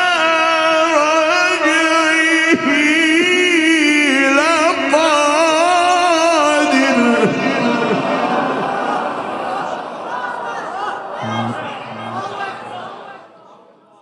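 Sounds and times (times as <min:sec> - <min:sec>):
man reciting melodically: 0:00.0 - 0:08.6, 0:11.2 - 0:13.2.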